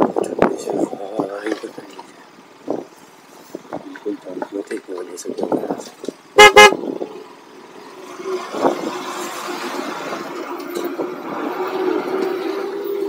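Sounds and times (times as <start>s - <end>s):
motorcycle horn beeping: 6.4s - 6.8s.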